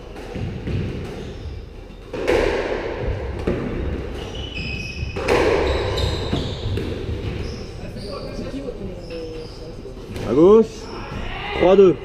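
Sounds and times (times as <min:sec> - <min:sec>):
squash ball hits: 0:00.0 - 0:01.3, 0:02.1 - 0:07.4
shoes squeaking on wooden floor: 0:03.6 - 0:11.3.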